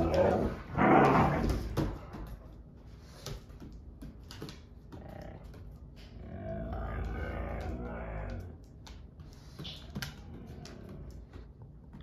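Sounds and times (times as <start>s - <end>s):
dogs moving on wooden floor: 0.0s - 12.0s.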